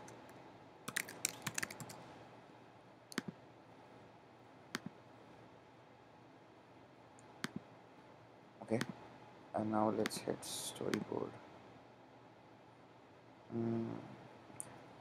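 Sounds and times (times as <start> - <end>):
keyboard typing: 0.9 - 2.0
mouse clicks: 3.1 - 3.4, 7.2 - 7.6, 8.8 - 9.0.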